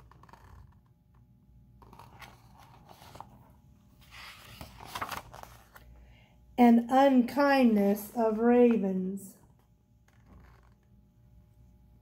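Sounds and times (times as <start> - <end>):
paper rustling and scraping: 1.8 - 5.9.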